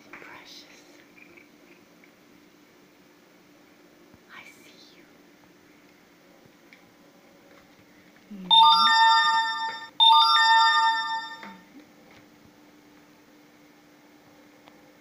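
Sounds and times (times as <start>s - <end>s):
faint steady hum: 0.0s - 15.0s
electronic chime: 8.5s - 11.6s.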